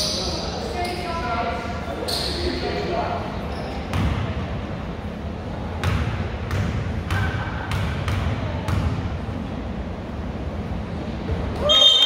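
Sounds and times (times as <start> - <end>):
low hum in hall: 0.0 - 12.0
basketball bouncing on gym floor: 3.9 - 4.3, 5.8 - 9.1.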